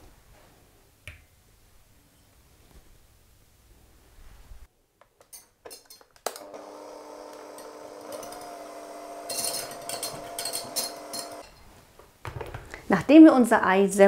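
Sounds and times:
immersion blender running: 6.3 - 11.4.

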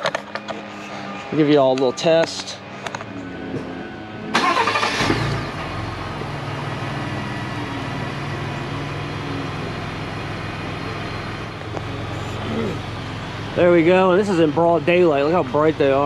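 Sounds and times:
truck engine starting and idling: 3.8 - 16.0.

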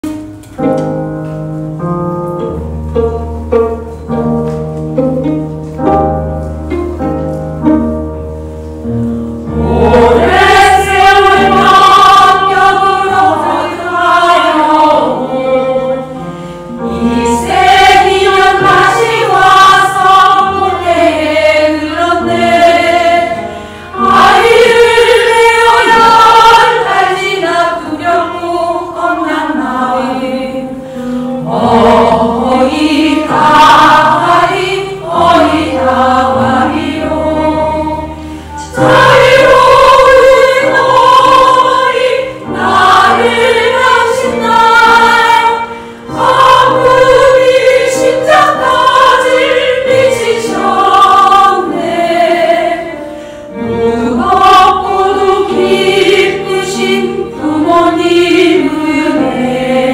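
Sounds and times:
instrumental accompaniment with bass: 0.0 - 29.9
women's choir singing a hymn: 1.8 - 8.2, 8.8 - 59.9.

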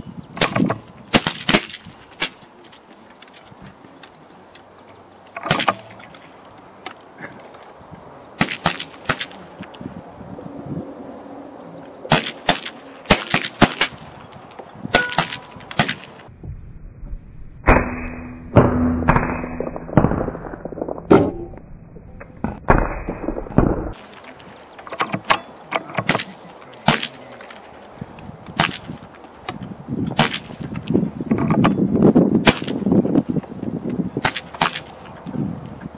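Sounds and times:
air rifle shots cracking: 0.4 - 2.4, 5.4 - 6.0, 8.4 - 9.4, 12.1 - 14.1, 14.9 - 16.2, 26.0 - 27.2, 30.2 - 30.6, 32.4 - 32.8.

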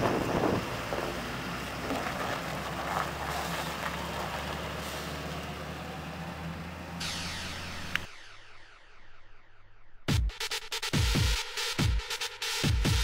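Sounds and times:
tractor diesel engine running: 0.0 - 8.1.

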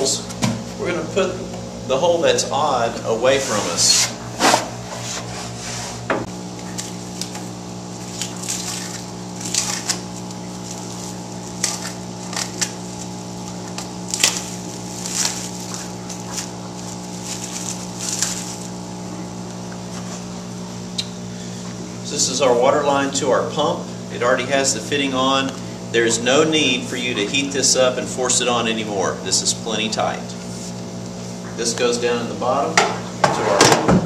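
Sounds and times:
steady low hum: 0.0 - 34.0
plastic packaging crinkling: 6.6 - 18.9.

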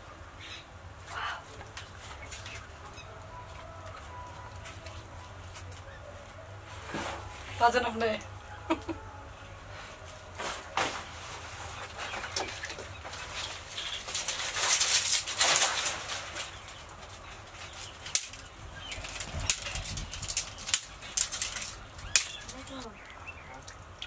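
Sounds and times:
wood fire popping: 10.3 - 24.0.

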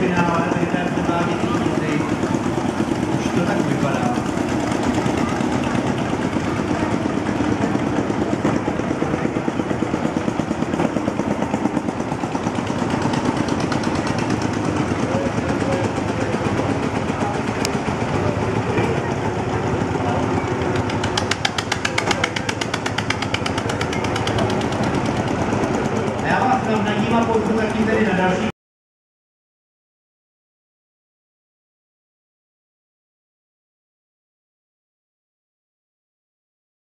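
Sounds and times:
old tractor engine popping: 0.0 - 28.5
tractor engine driving past: 0.0 - 28.5.

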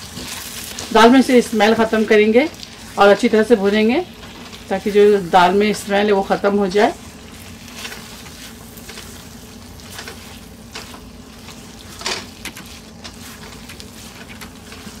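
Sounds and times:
spatula scraping a wok: 0.0 - 0.9, 7.0 - 15.0
soft sizzle: 0.0 - 15.0
steady low hum: 0.0 - 15.0.

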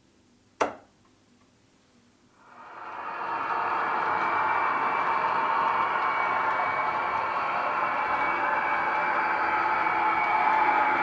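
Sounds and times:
model train running rumble: 2.4 - 11.0.

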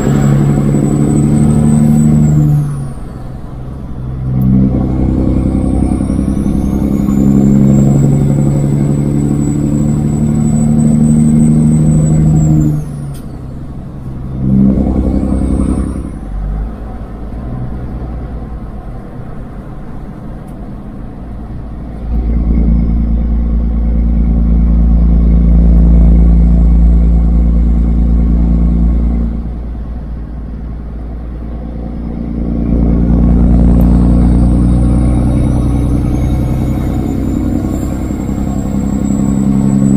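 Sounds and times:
high turbo whistle: 0.0 - 3.4, 4.2 - 16.4, 31.4 - 39.9
diesel truck engine pulling: 0.0 - 39.9.

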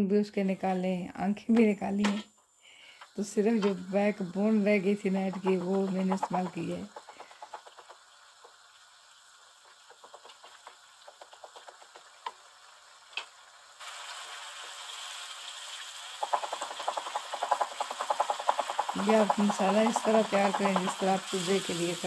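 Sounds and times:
vegetables sizzling in oil: 2.0 - 22.0
wooden spatula stirring: 3.4 - 8.6, 9.6 - 12.4, 16.2 - 22.0.

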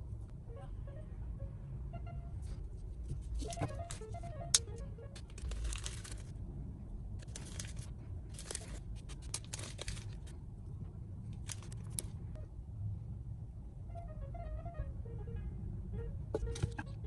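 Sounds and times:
low steady rumble: 0.0 - 17.0
dry scraping and rustling: 5.2 - 6.3.

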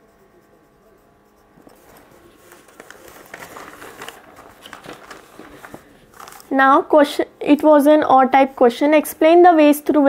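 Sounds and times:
paper rustling and crinkling: 1.6 - 6.5.

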